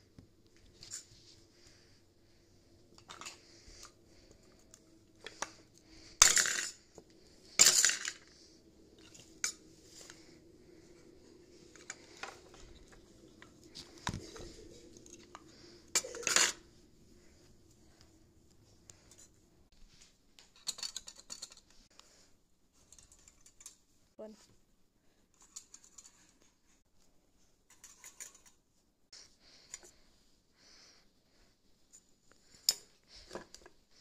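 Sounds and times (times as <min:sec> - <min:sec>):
toy cubes clattering into plastic bowl: 0:06.1 - 0:06.9, 0:07.6 - 0:08.4.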